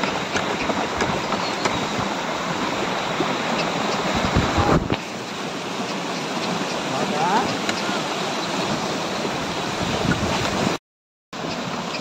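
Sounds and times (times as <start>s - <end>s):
wind buffeting microphone: 0.0s - 5.1s, 8.4s - 10.8s
wind and surf rushing: 0.0s - 10.8s.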